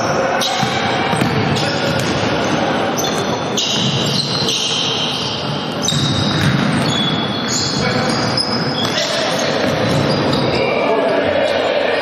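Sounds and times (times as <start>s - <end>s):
sneaker squeaks: 0.0s - 10.9s
basketball bouncing on wooden floor: 0.6s - 2.1s, 5.9s - 7.1s, 8.8s - 10.2s.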